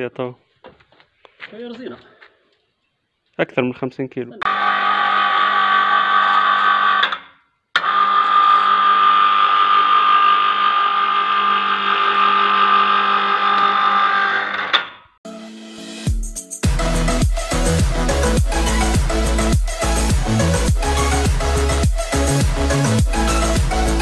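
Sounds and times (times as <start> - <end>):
electric hoist motor whining: 4.5 - 14.8.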